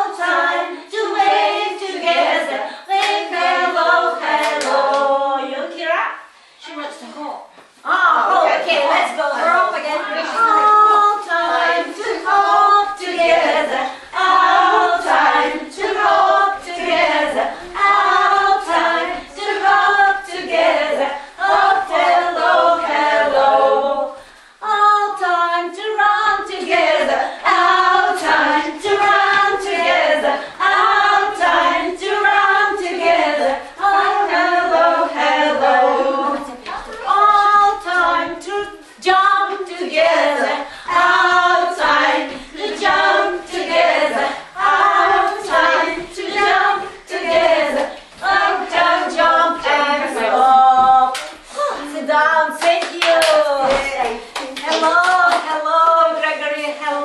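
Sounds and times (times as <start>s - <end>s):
women singing unaccompanied: 0.0s - 6.0s, 7.8s - 57.0s.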